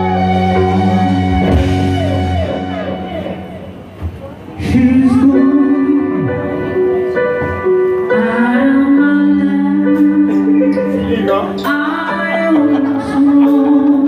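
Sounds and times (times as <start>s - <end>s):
live band music: 0.0s - 14.0s
person singing long notes: 4.6s - 14.0s.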